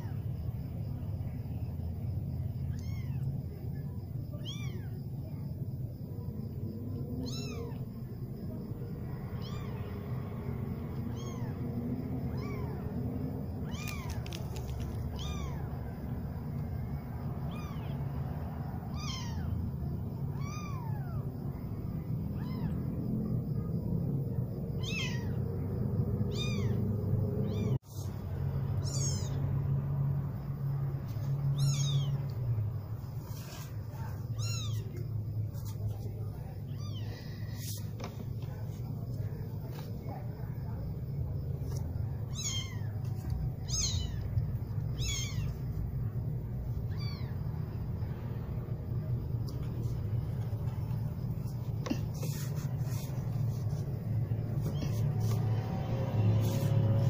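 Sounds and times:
kitten mewing: 2.7 - 3.3, 7.2 - 7.8, 11.1 - 11.6, 12.3 - 12.9, 24.8 - 25.4, 26.3 - 26.8, 28.8 - 29.4, 31.5 - 32.2, 34.1 - 35.0, 42.1 - 45.6.

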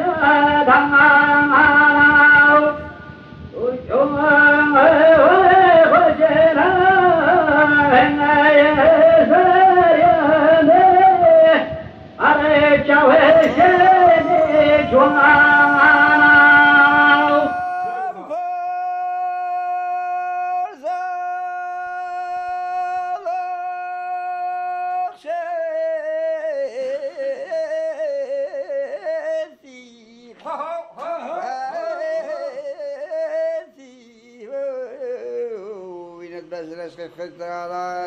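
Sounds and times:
singer breathing: 3.0 - 3.6, 11.7 - 12.2
man singing solo: 3.5 - 38.0.

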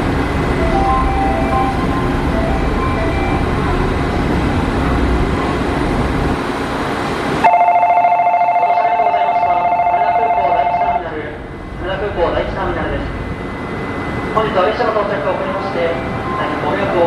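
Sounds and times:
train low rumble: 0.0 - 17.0
electronic departure signal trill: 0.4 - 4.4, 7.4 - 11.1.

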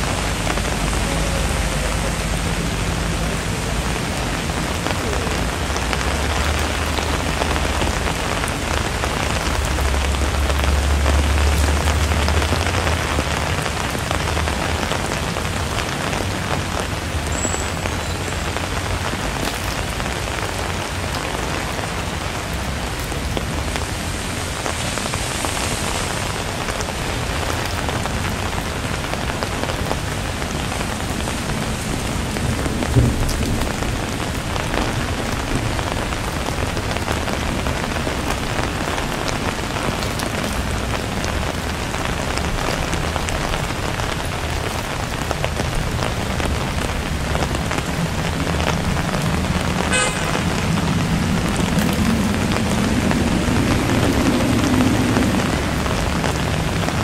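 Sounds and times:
rain pattering on surfaces: 0.0 - 57.0
low rumble: 48.8 - 57.0.

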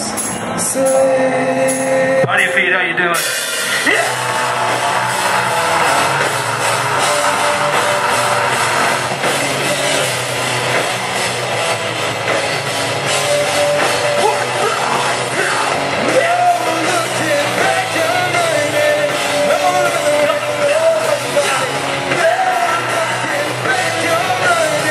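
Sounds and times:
person singing: 0.0 - 2.5, 3.7 - 10.0, 13.7 - 24.9
rock band playing: 0.0 - 24.9.

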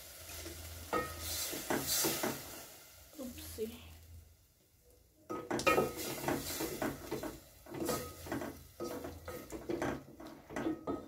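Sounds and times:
wooden spoon scraping metal pot: 5.3 - 11.0.

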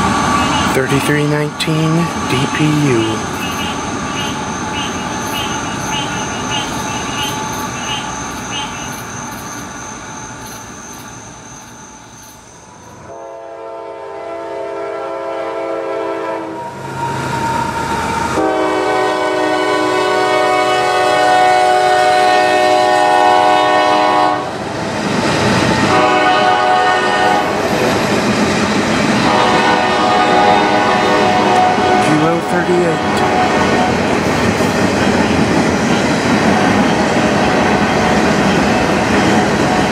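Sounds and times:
freight train rail noise: 0.0 - 39.9
locomotive horn blasts: 13.1 - 16.7, 18.4 - 24.5, 25.9 - 27.6, 29.2 - 34.0.

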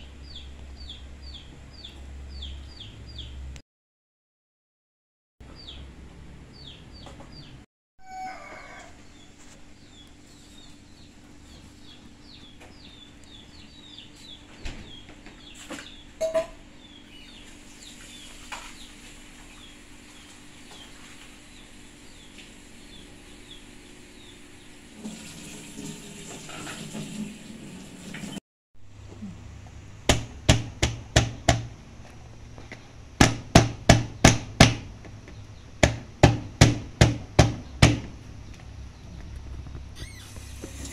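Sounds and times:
pestle pounding on plastic board: 30.1 - 31.7, 33.2 - 34.9, 35.8 - 38.2.

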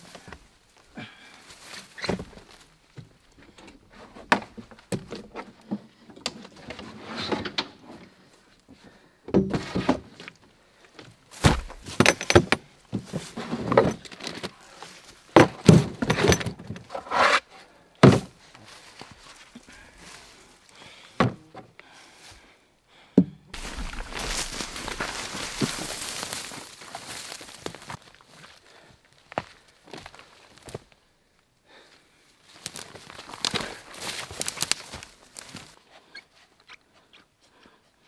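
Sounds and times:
hard case thunks and clatter: 11.4 - 14.6, 15.3 - 17.0, 18.0 - 18.4.

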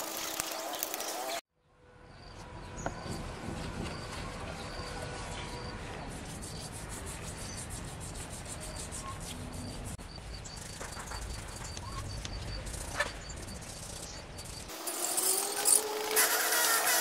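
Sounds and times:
brush scrubbing paint on wood: 3.4 - 10.0
insect chirping: 9.5 - 14.9.

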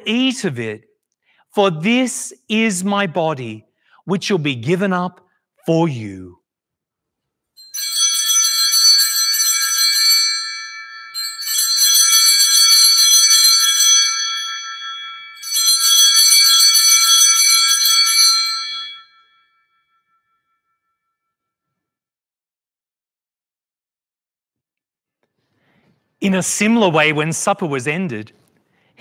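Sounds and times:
altar bells jingling: 7.6 - 19.6.

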